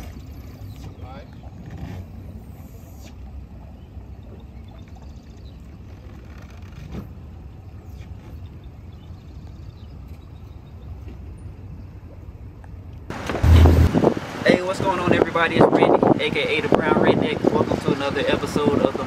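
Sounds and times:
engines idling: 0:13.1 - 0:14.4.

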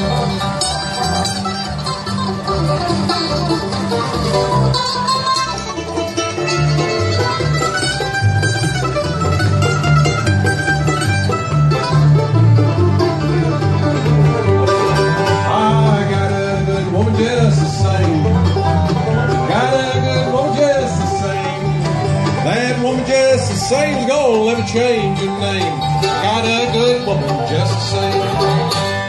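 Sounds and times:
bluegrass band playing: 0:00.0 - 0:29.0
mandolin: 0:00.0 - 0:29.0.

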